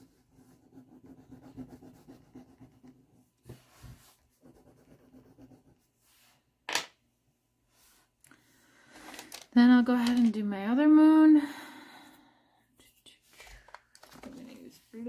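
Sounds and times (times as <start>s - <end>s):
pastel rubbing on paper: 0.0s - 6.4s.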